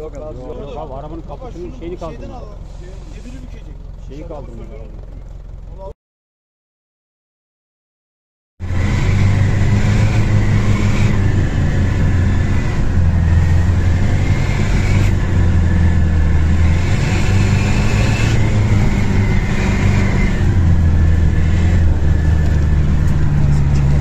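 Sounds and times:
off-road vehicle engine droning: 0.0s - 5.9s, 8.6s - 24.0s.

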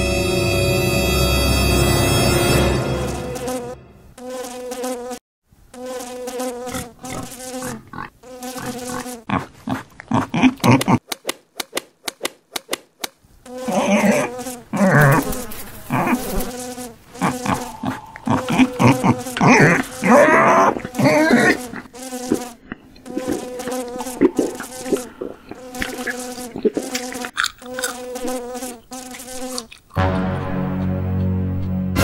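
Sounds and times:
cartoon housefly buzzing: 2.7s - 11.3s, 13.4s - 30.0s
quick sharp clicks: 10.7s - 13.2s.

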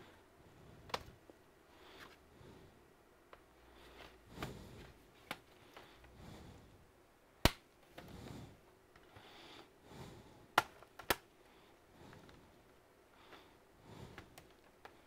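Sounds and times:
sharp clicks and taps on laptop: 10.6s - 11.3s.

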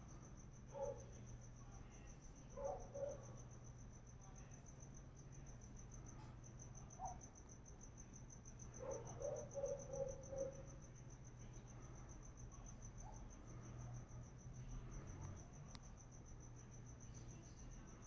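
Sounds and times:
cricket chirping: 0.0s - 18.0s.

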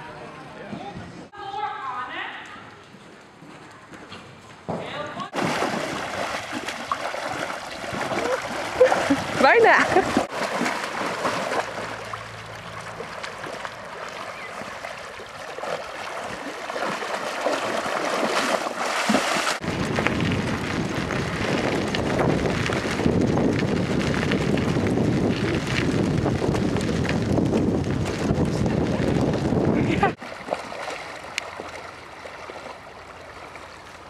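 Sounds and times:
water splashing and sloshing: 5.2s - 34.0s
wind buffeting microphone: 7.8s - 10.3s, 19.6s - 30.2s.

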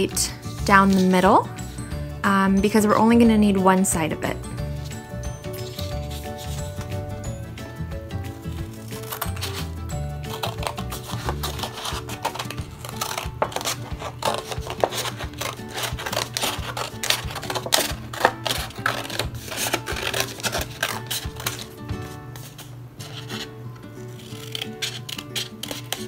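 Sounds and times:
background music: 0.0s - 26.0s
scissors cutting paper plate: 8.3s - 26.0s.

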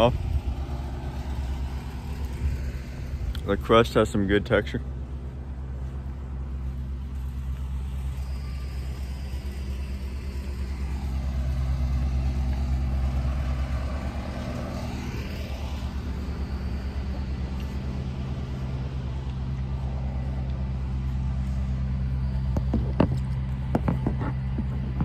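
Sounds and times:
low machine hum: 0.0s - 25.0s.

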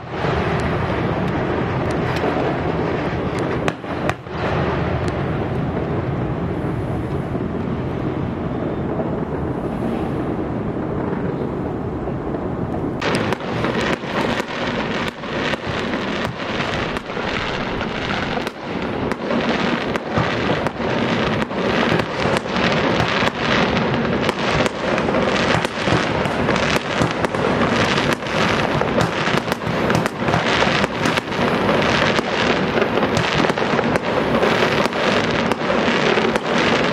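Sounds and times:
fireworks bangs and crackle: 0.0s - 36.9s
wind rumble on microphone: 0.0s - 36.9s.

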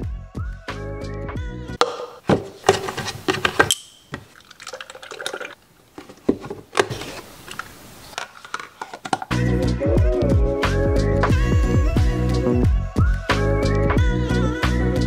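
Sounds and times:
carton and cup clicks and taps: 1.8s - 7.6s, 8.2s - 9.4s
milk pouring and gurgling: 2.7s - 6.5s
plastic lid fitted onto cup: 8.2s - 9.4s.

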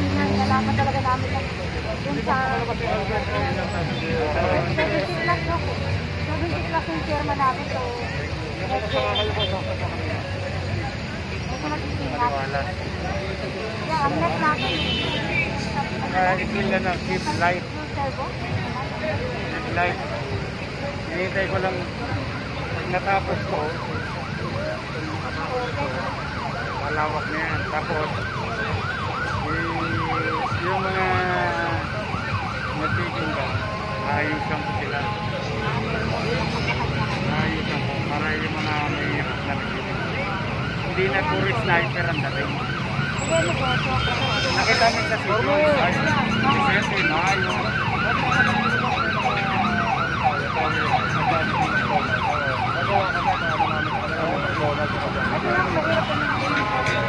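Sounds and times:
siren yelping: 21.6s - 57.0s.

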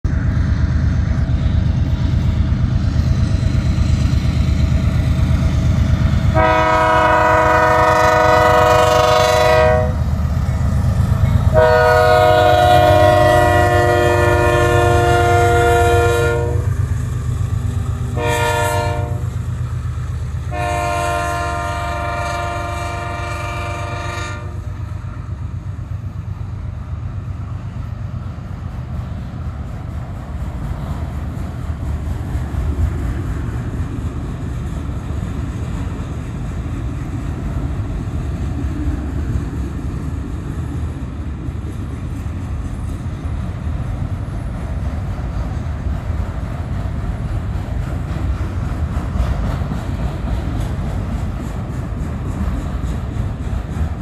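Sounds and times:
diesel locomotives rumbling past: 0.0s - 54.0s
multi-tone train air horn: 6.3s - 10.1s, 11.5s - 16.8s, 18.2s - 19.4s, 20.5s - 24.8s.

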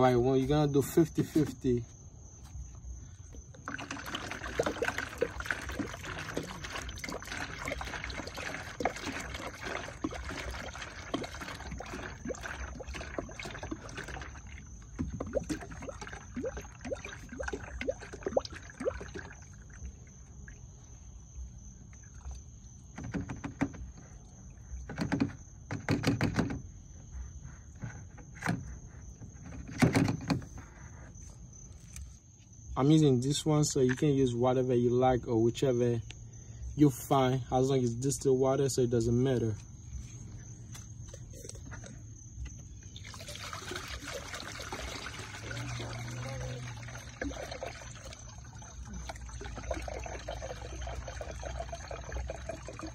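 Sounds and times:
liquid pouring through a funnel: 3.3s - 25.0s, 41.0s - 52.9s.

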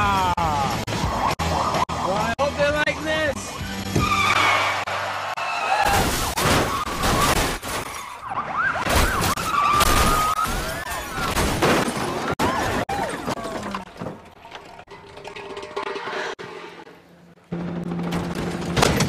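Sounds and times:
police sirens wailing: 0.0s - 2.5s, 4.0s - 11.4s
metal crunching impacts: 5.8s - 8.2s, 8.8s - 19.0s
glass shattering: 5.9s - 8.2s, 8.9s - 14.0s.

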